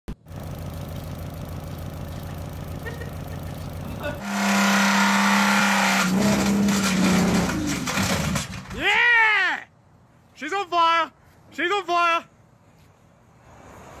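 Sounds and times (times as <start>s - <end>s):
high-revving engine drone: 0.1s - 7.8s
car engine idling: 0.1s - 8.7s.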